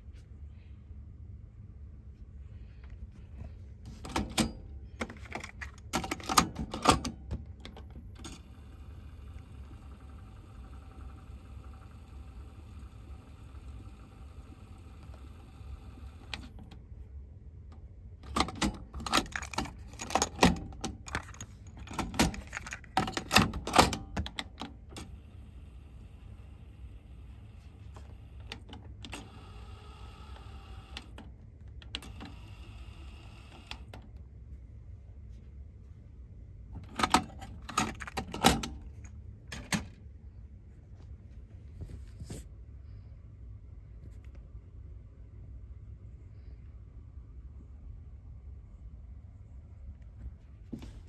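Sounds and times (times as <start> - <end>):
tape transport whirring: 3.8 - 16.8, 18.2 - 34.1.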